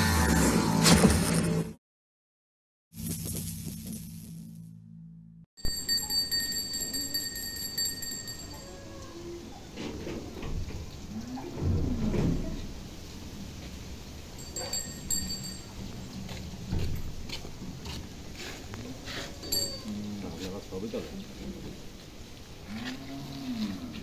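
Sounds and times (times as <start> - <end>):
cart wheels rattling on pavement: 14.4 - 17.6.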